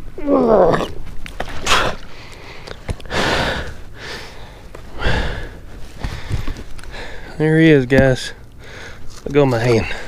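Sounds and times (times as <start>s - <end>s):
man breathing hard: 1.8s - 7.4s, 8.6s - 9.1s.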